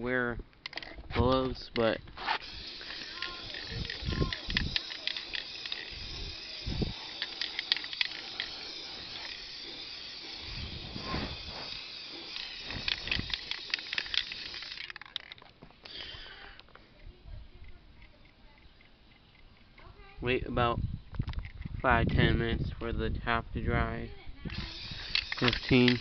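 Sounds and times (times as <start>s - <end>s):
spray paint hissing: 2.1s - 19.7s, 24.5s - 26.0s.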